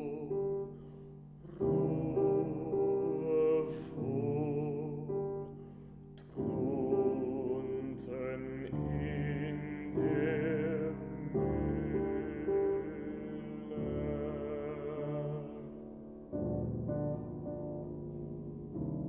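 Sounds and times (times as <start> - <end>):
baritone singing with vibrato: 0.0 - 0.8, 1.4 - 5.5, 6.2 - 16.4
grand piano chords: 0.0 - 19.0.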